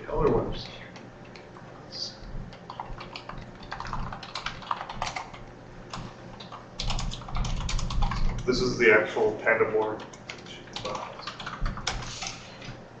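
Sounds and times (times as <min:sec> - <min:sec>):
computer keyboard typing: 0:02.5 - 0:08.5, 0:09.7 - 0:12.5.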